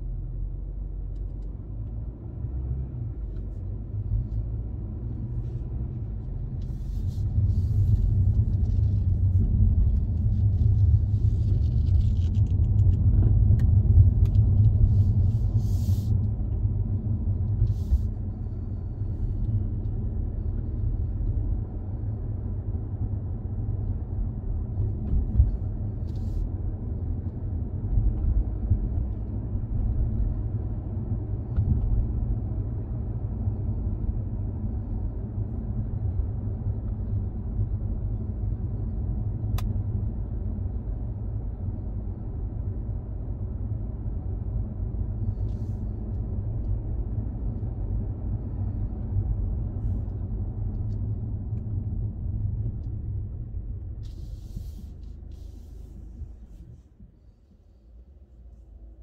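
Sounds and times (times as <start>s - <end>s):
car engine and tyre noise: 0.0s - 59.0s.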